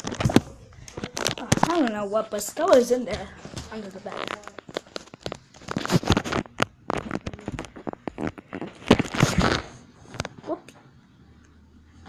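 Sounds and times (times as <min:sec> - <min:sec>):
phone being handled: 0:00.0 - 0:01.9, 0:02.7 - 0:10.4.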